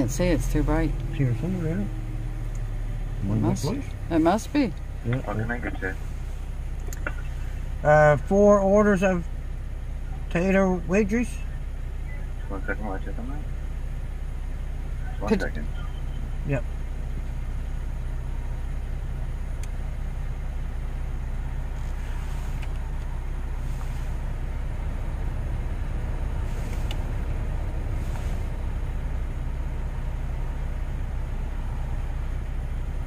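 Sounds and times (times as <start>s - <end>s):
van engine idling: 0.0s - 33.0s
soft hisses: 21.7s - 22.9s, 23.5s - 24.3s, 26.4s - 27.1s, 27.9s - 28.6s.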